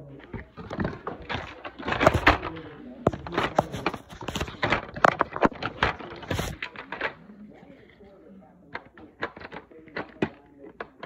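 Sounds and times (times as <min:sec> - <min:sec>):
plastic pieces clicking and knocking: 0:00.2 - 0:07.2, 0:08.7 - 0:11.0.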